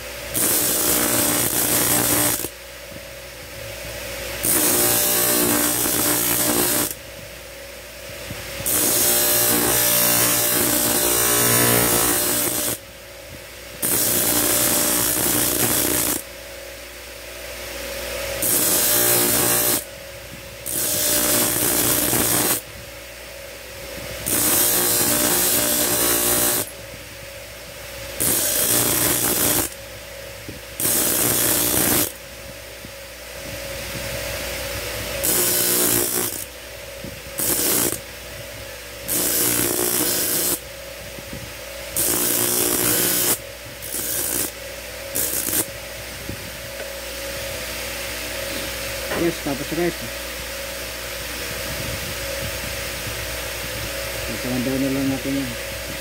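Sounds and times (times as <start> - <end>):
grinding wheel motor hum: 0.0 - 2.6, 3.4 - 7.3, 8.1 - 13.0, 13.7 - 16.3, 18.0 - 22.8, 23.7 - 27.0, 27.6 - 32.3, 33.4 - 50.1
steel grinding on wheel: 0.3 - 2.5, 4.4 - 7.0, 8.6 - 12.8, 13.8 - 16.2, 18.4 - 19.8, 20.6 - 22.6, 24.2 - 26.7, 28.2 - 29.8, 30.8 - 32.2, 35.1 - 36.5, 37.4 - 38.0, 39.1 - 40.6, 42.0 - 44.5, 45.1 - 45.7.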